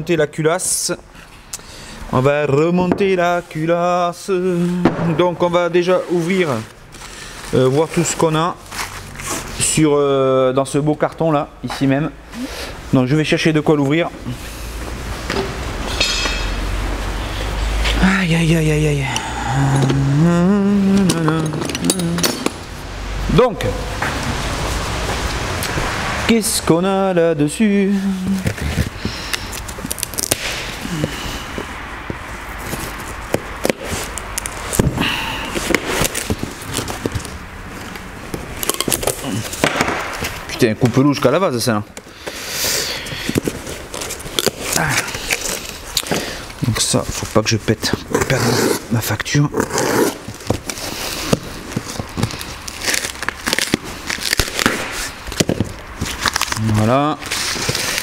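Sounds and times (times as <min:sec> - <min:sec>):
plastic and paper crinkling and tearing: 0:04.5 - 0:09.9, 0:28.0 - 0:31.5, 0:32.1 - 0:58.0
packaging crackling and rustling: 0:05.7 - 0:09.8, 0:28.2 - 0:41.2, 0:41.9 - 0:58.0.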